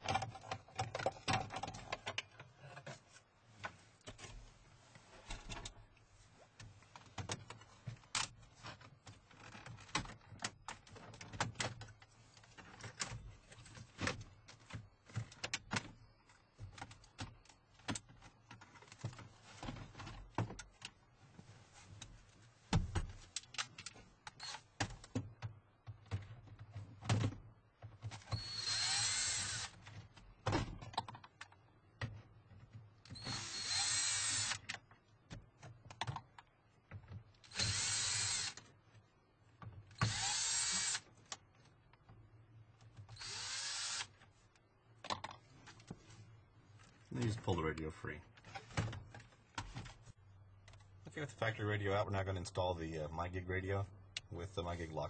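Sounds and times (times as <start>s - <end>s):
cordless drill running: 28.3s - 29.8s, 33.1s - 34.6s, 37.4s - 38.6s, 40.0s - 41.0s, 43.2s - 44.2s.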